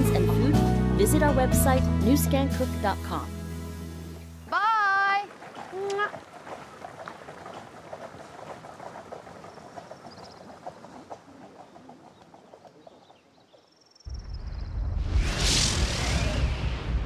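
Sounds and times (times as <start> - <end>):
horse hooves clopping: 4.1 - 13.8
wheels crunching on gravel: 5.3 - 13.6
faint birdsong: 8.3 - 14.8
deep rumble: 14.1 - 17.0.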